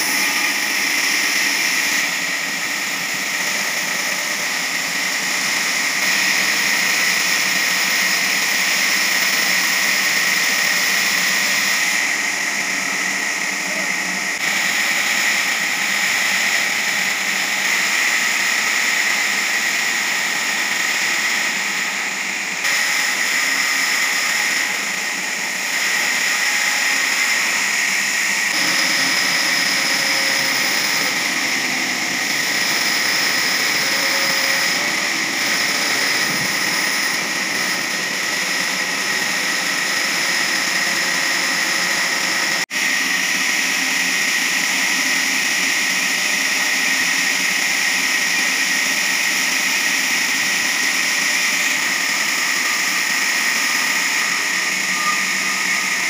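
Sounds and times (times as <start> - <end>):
band sawmill sawing log: 0.0 - 56.0
high-pitched saw blade whine: 0.0 - 56.0.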